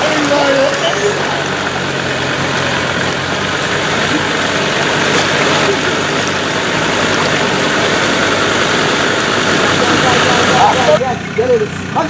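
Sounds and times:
diesel engine running: 0.0 - 12.0.

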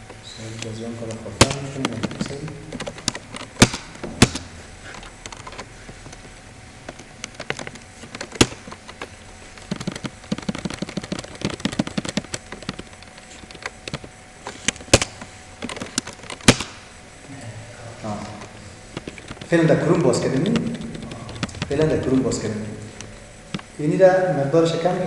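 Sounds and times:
typing on computer keyboard: 7.3 - 14.1, 19.0 - 22.3.

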